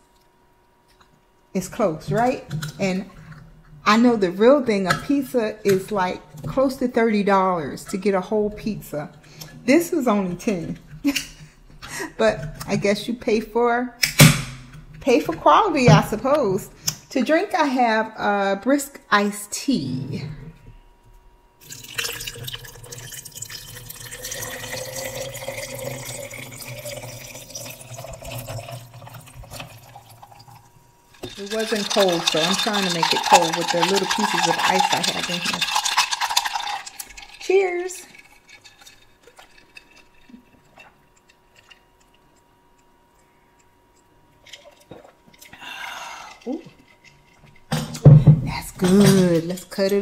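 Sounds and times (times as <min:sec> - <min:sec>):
iced tea pouring into a glass: 0:21.6 - 0:42.2
breathy sound: 0:45.5 - 0:46.6.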